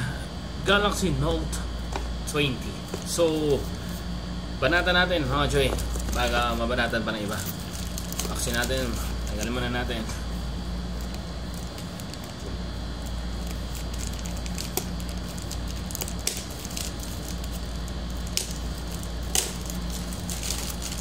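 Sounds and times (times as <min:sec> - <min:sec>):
steady low hum: 0:00.0 - 0:21.0
packaging crinkling: 0:05.6 - 0:09.6, 0:11.0 - 0:21.0
sharp clicks and cracks: 0:13.9 - 0:17.5, 0:18.2 - 0:21.0.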